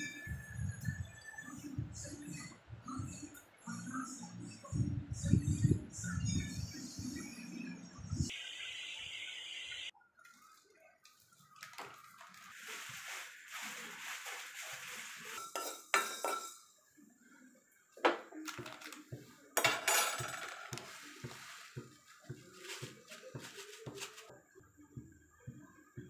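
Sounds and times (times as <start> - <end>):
pots and plates clinking: 14.8 - 16.7, 19.6 - 24.2.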